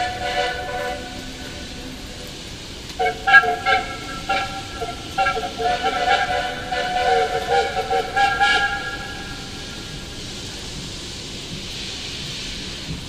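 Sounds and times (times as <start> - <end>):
steam locomotive whistle chord: 0.0 - 10.3
steady hiss: 0.0 - 13.0.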